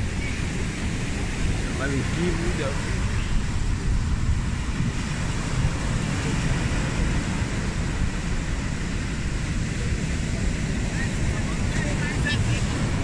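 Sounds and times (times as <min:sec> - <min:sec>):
surf breaking on beach: 0:00.0 - 0:13.0
wind buffeting microphone: 0:00.0 - 0:13.0.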